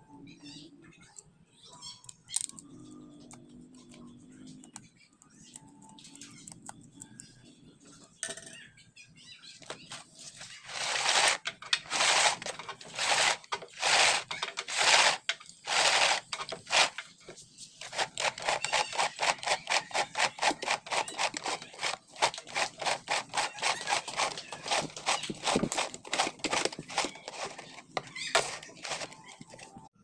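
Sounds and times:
plastic rubbing and scraping: 9.7 - 29.9
cable reel clicking: 10.7 - 17.0.

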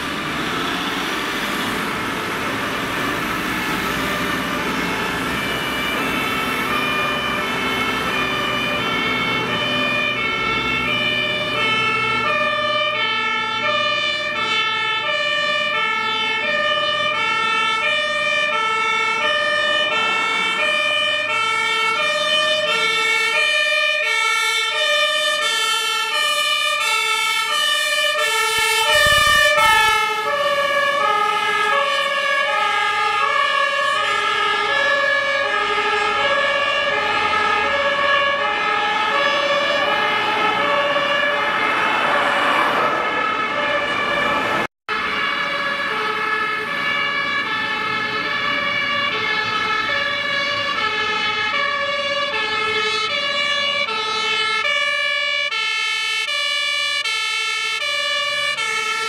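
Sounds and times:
rush of passing truck: 0.0 - 24.6, 25.6 - 54.8
fire engine two-tone siren: 0.0 - 59.0.

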